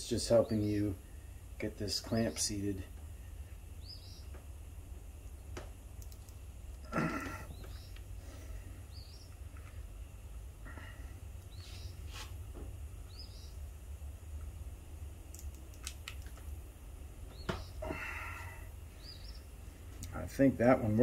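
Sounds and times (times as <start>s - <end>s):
steady low hum: 0.0s - 21.0s
faint bird chirps: 3.4s - 4.4s, 7.0s - 9.5s, 10.7s - 12.1s, 13.0s - 13.7s, 17.2s - 20.2s.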